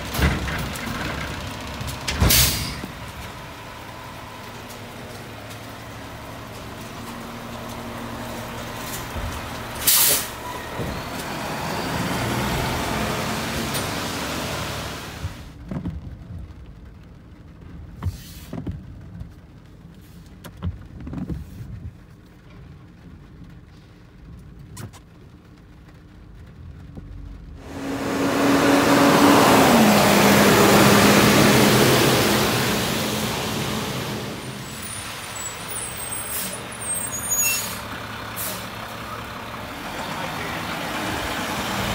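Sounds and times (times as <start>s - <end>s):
garbage truck engine and hydraulics: 0.0s - 15.6s, 27.6s - 41.9s.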